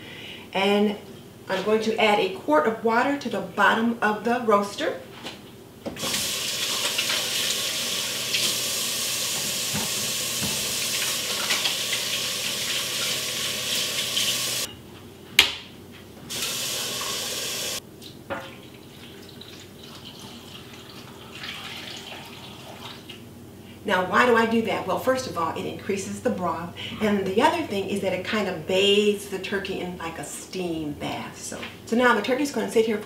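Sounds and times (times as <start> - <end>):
water pouring into a pan: 6.0 - 14.7, 18.6 - 23.0.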